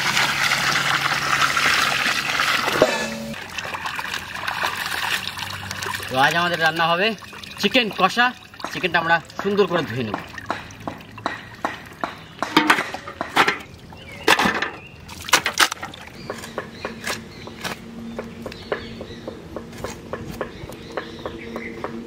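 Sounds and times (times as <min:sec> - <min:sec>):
chicken sloshing in water: 0:00.0 - 0:12.0.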